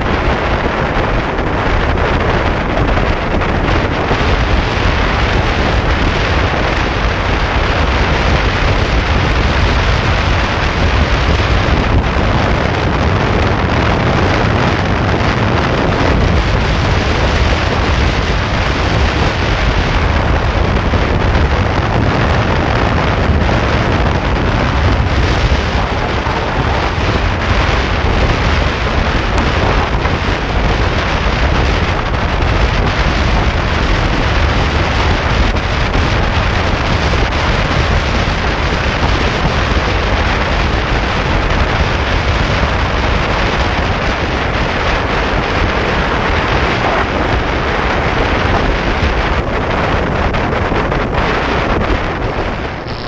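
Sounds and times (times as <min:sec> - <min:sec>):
wind rushing on microphone: 0:00.0 - 0:53.0.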